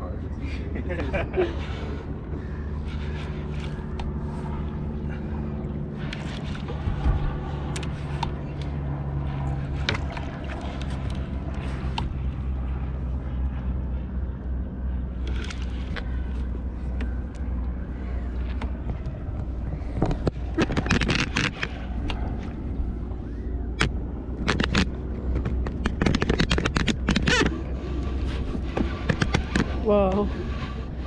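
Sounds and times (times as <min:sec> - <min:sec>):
boat engine idling: 0:00.0 - 0:31.0
rapid sharp clicks and crackles: 0:23.8 - 0:27.5.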